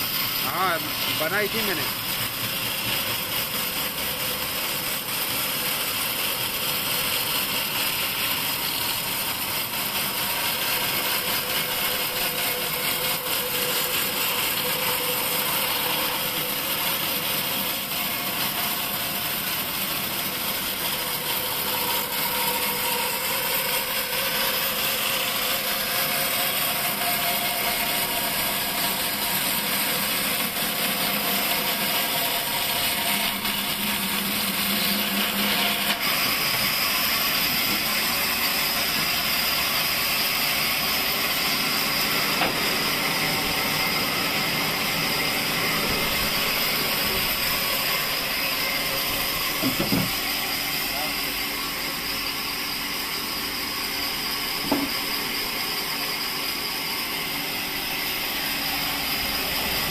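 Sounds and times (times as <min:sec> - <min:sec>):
bandsaw cutting through wood: 0:00.0 - 0:59.9
machine hum: 0:07.4 - 0:59.9.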